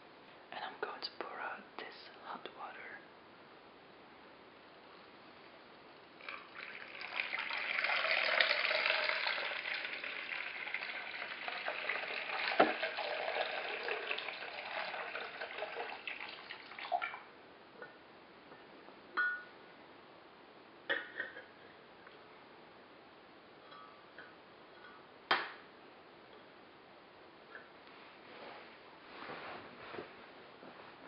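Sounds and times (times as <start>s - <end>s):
water pouring into teapot: 6.2s - 17.3s.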